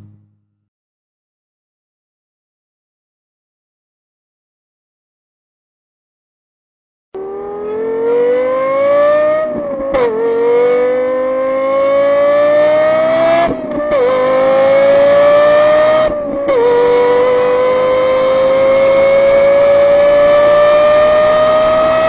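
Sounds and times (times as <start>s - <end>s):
car engine accelerating hard: 7.2s - 22.0s.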